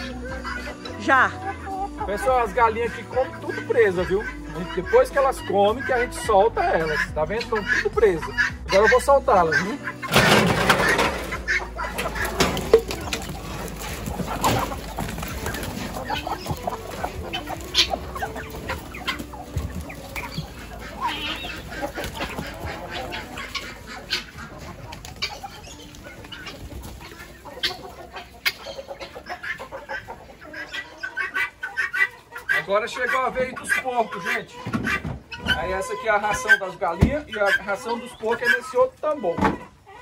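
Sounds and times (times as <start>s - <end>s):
chickens clucking: 0.0s - 40.0s
metal coop door rattling: 10.0s - 25.7s.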